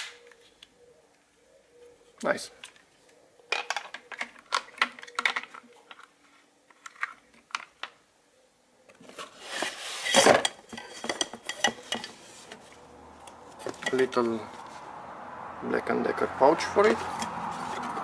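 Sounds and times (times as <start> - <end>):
plastic attachments clattering: 3.5 - 6.1
rummaging in cardboard box: 9.0 - 12.8.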